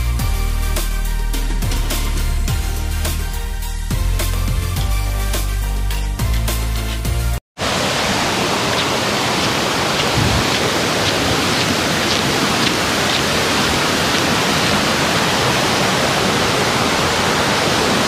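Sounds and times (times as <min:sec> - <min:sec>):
waterfall rushing: 0:07.6 - 0:18.0.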